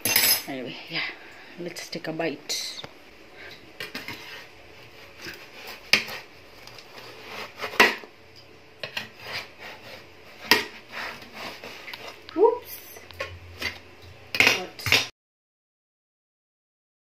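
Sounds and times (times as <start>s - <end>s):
metal spatula scraping oven tray: 3.9s - 8.0s, 8.8s - 12.2s.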